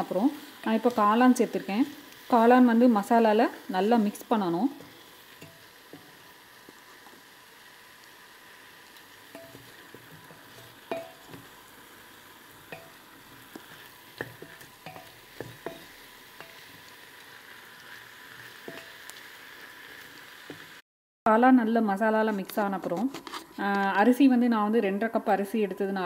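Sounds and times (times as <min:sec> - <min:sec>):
faint frying sizzle: 0:00.0 - 0:20.8
wooden spatula scraping a pot: 0:22.3 - 0:23.8.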